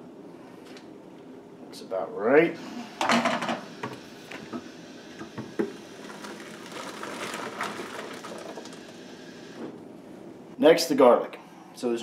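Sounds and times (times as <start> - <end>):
thick liquid pouring into bucket: 5.9 - 9.0.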